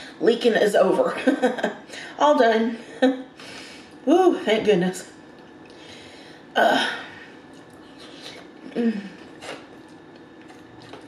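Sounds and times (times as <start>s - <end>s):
woman humming while eating: 8.6s - 9.7s.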